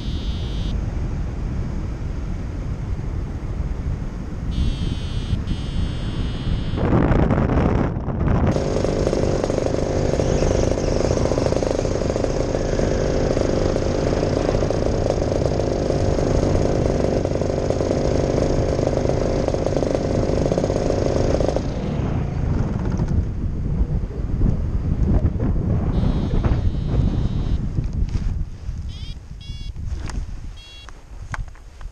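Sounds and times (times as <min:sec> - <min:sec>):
wind rushing over microphone: 0:00.0 - 0:31.9
paramotor engine running: 0:04.6 - 0:06.9, 0:08.5 - 0:23.3, 0:26.0 - 0:27.6.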